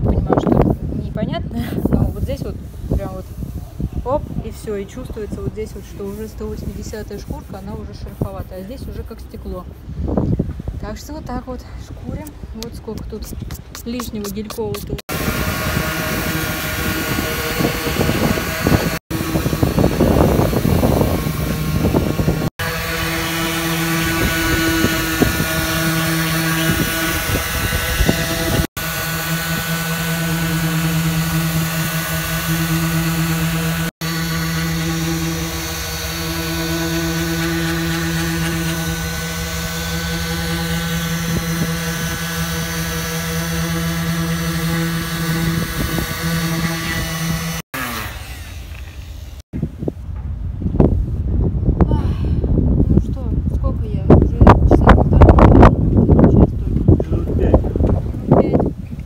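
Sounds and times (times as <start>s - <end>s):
electric sander grinding: 13.5s - 49.4s.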